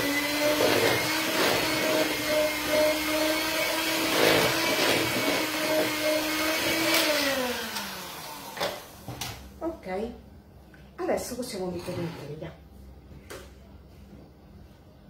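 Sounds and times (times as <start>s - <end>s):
electric hand mixer running: 0.0s - 9.0s.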